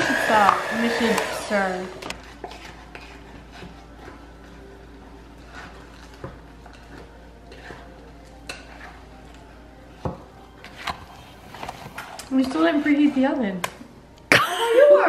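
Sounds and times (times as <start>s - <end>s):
spoon scraping dough in bowl: 0.4s - 4.7s, 5.3s - 9.3s.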